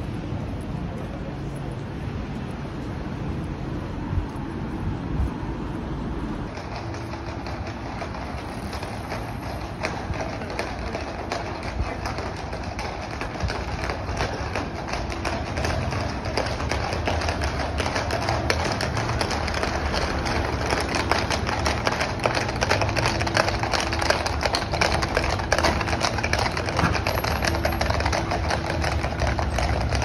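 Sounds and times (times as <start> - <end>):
hooves clattering on asphalt: 0.0 - 30.0.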